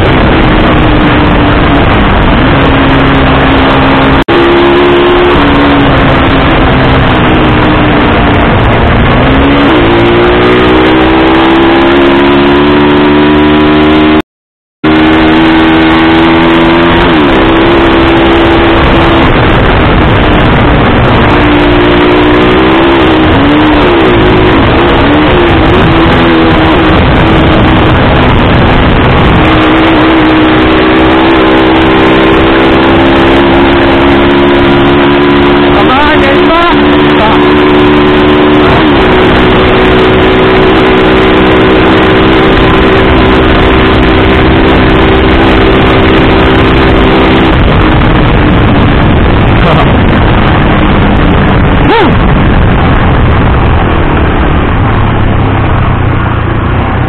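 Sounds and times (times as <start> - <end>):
motorcycle engine running: 0.0 - 14.2, 14.8 - 57.0
wind rushing on microphone: 0.0 - 14.2, 14.8 - 57.0.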